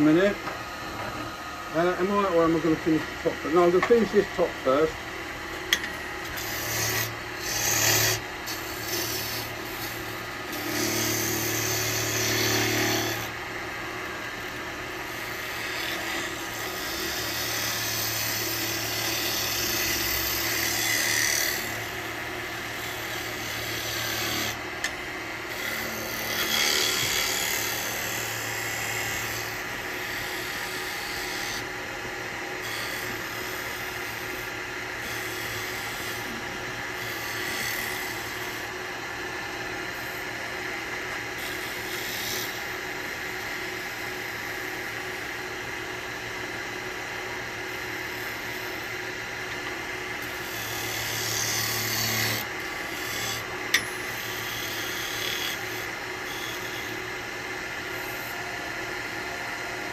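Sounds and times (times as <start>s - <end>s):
lathe humming: 0.0s - 59.9s
turning tool scraping wood: 6.3s - 13.4s, 22.7s - 24.6s, 25.5s - 31.7s, 32.6s - 38.7s, 50.2s - 56.8s.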